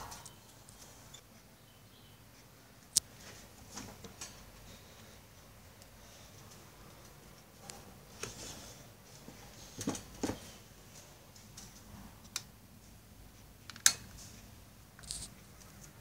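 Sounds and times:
desk fan clicks and knocks: 9.2 - 10.5.

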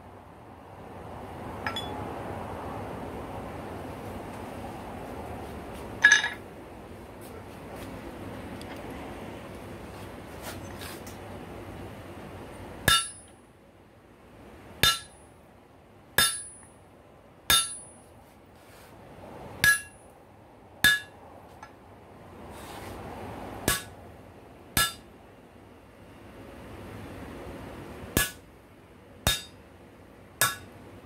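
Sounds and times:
hammer striking metal on anvil: 1.7 - 2.0, 6.0 - 6.4, 12.9 - 13.3, 14.8 - 15.2, 16.2 - 16.7, 17.5 - 18.0, 19.6 - 20.0, 20.8 - 21.2, 23.7 - 24.0, 24.8 - 25.1, 28.2 - 28.4, 29.2 - 29.6, 30.4 - 30.7.

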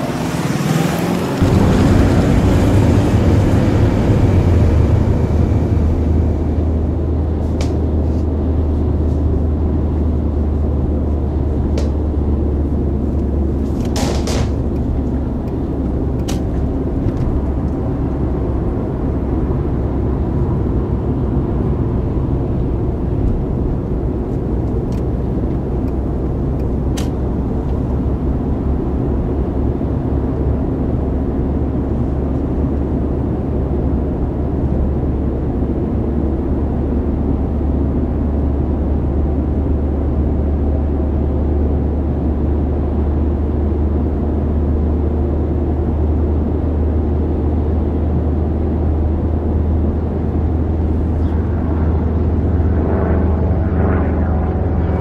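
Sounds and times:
vehicle engine drone: 0.0 - 55.0.

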